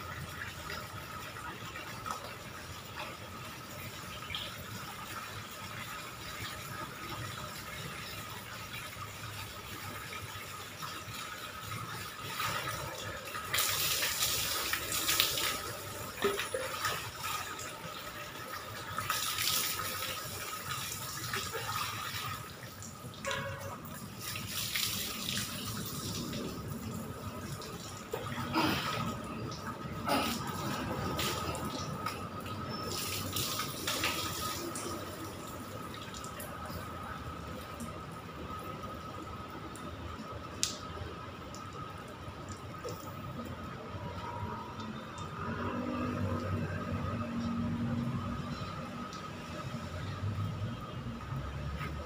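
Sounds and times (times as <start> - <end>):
water splashing on concrete floor: 10.2 - 36.4.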